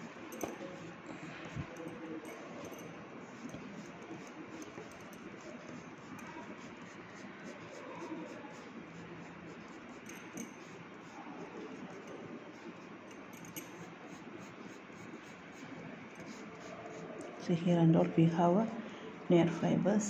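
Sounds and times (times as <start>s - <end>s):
pencil scribbling on paper: 3.2s - 17.5s.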